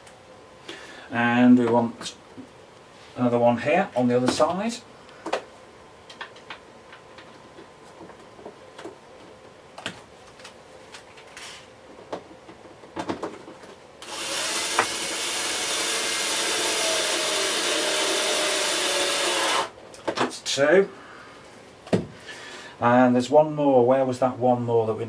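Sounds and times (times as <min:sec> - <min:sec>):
powered screwdriver running: 0:14.0 - 0:19.7.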